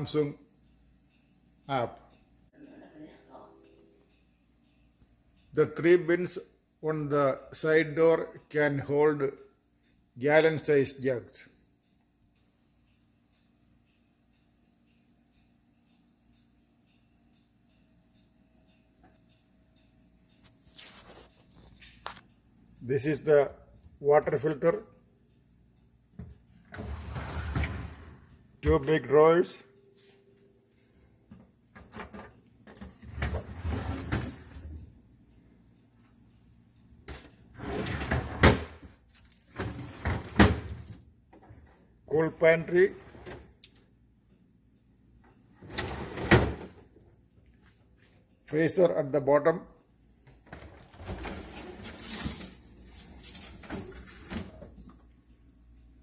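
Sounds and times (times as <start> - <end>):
drawer sliding on rails: 26.7 - 28.2, 33.0 - 34.8, 37.6 - 38.7, 39.6 - 40.7, 42.9 - 43.5, 45.6 - 46.7.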